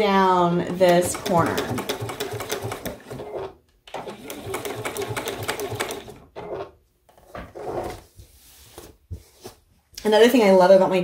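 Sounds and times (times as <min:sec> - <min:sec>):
sewing machine stitching: 0:00.7 - 0:06.8.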